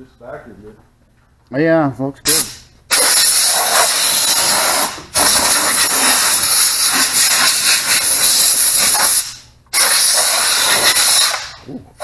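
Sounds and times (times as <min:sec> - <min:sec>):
compressed air blow gun hissing: 0:02.4 - 0:11.6.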